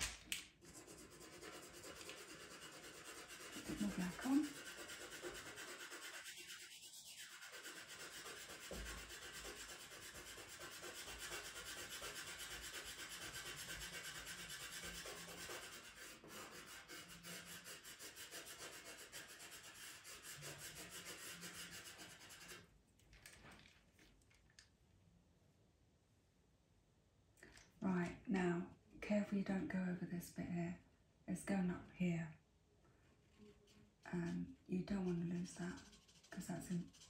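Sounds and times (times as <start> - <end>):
pencil scratching on paper: 0.6 - 22.7, 33.5 - 37.0.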